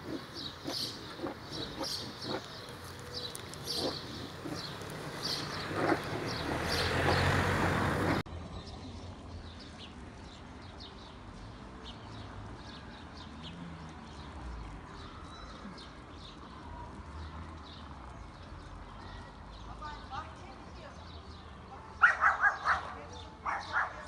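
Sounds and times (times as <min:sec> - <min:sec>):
loud rough noise: 0:00.0 - 0:08.2
small birds chirping: 0:00.0 - 0:24.0.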